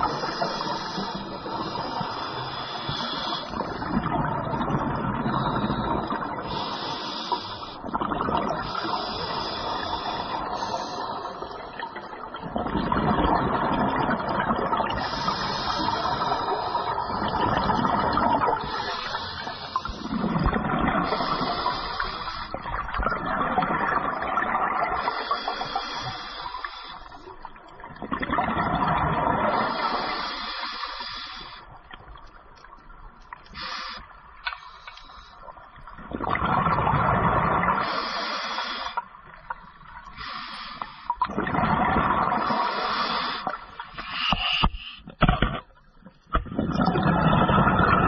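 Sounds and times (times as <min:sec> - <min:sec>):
regulator breathing hiss: 0:00.0 - 0:03.6, 0:06.4 - 0:07.8, 0:08.6 - 0:11.4, 0:15.0 - 0:17.2, 0:18.6 - 0:20.1, 0:21.1 - 0:22.6, 0:25.1 - 0:27.3, 0:29.7 - 0:31.7, 0:37.8 - 0:39.0, 0:40.2 - 0:41.1
exhaled bubbles rushing: 0:03.5 - 0:06.5, 0:07.9 - 0:10.1, 0:11.4 - 0:21.8, 0:22.6 - 0:25.1, 0:27.8 - 0:29.7, 0:35.9 - 0:37.9, 0:41.2 - 0:42.7, 0:46.4 - 0:48.0.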